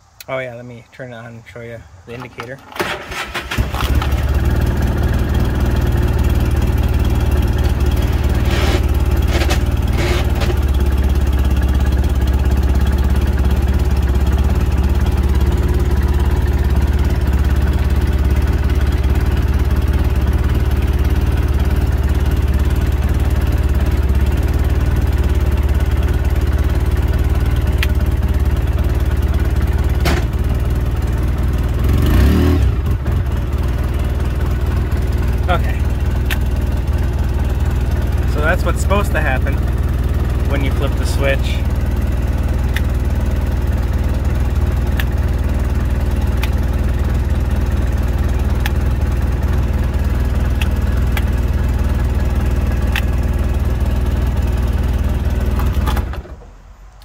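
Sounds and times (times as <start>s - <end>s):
engine idling: 2.1s - 57.0s
short engine burst: 2.8s - 4.3s, 7.5s - 10.7s.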